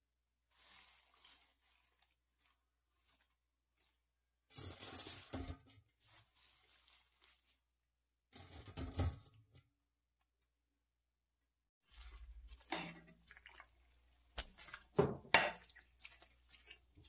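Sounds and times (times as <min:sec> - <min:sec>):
leaves rustling and crinkling: 0:00.5 - 0:07.8.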